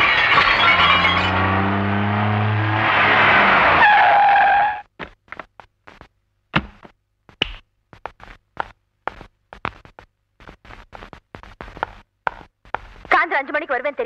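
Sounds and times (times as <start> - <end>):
car engine drone: 0.0 - 4.8
footsteps: 4.9 - 13.2.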